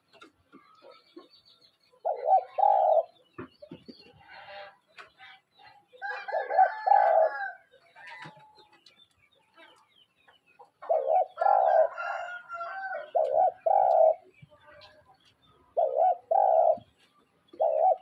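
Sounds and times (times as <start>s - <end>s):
dove cooing: 2.0s - 3.2s, 6.1s - 7.6s, 10.8s - 14.3s, 15.7s - 18.0s.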